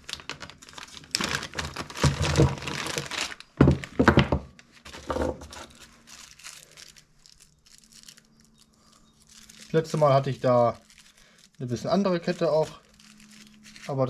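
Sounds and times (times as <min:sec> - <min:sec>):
rustling and clattering handling: 0:00.0 - 0:14.0.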